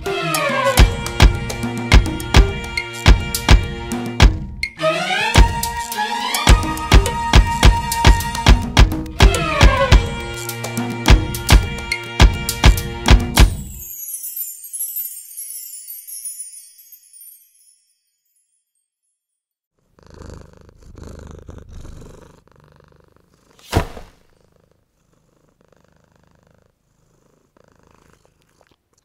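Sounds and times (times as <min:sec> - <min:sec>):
cat purring: 0:19.8 - 0:29.0
sharp knock: 0:23.7 - 0:24.2.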